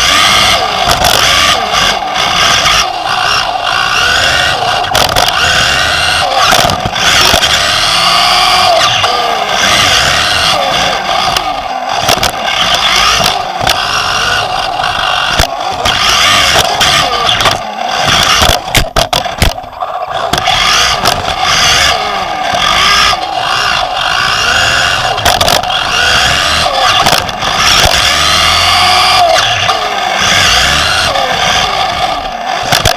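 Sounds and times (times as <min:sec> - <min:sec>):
electric motor and gear whine: 0:00.0 - 0:32.9
chassis knocking on bumps: 0:00.1 - 0:05.7, 0:06.4 - 0:08.2, 0:11.2 - 0:28.1.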